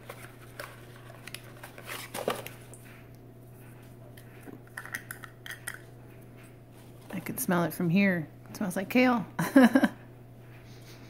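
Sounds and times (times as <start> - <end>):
carton rustling: 0.0 - 2.7.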